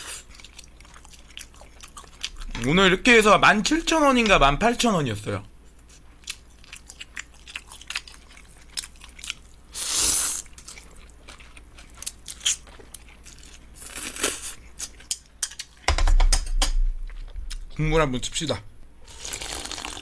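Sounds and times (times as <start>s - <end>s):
chewing with mouth clicks: 0.0s - 2.7s, 5.7s - 15.8s
noodle slurps: 19.1s - 20.0s.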